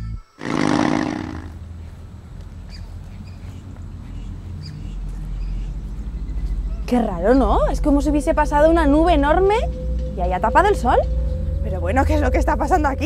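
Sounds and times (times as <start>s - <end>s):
low rumble: 5.4s - 13.0s.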